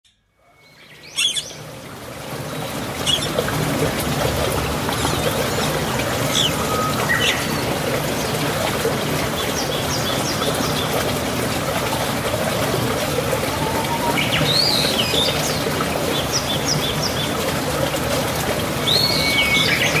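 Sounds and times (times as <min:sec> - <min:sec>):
high bird chirps: 0:00.5 - 0:01.6, 0:03.0 - 0:03.4, 0:05.0 - 0:07.8
running water: 0:00.6 - 0:20.0.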